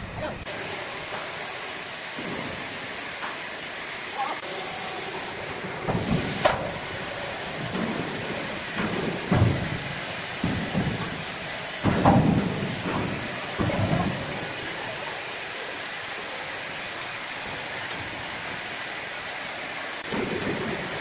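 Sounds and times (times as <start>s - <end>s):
steady hiss-like noise: 0.0s - 21.0s
dull knocks and thuds of log: 7.6s - 14.5s.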